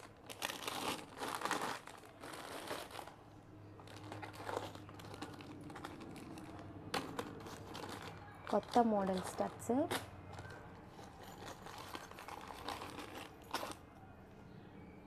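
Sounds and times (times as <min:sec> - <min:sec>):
plastic packets crinkling: 0:00.0 - 0:13.9
faint low hum: 0:00.0 - 0:15.0.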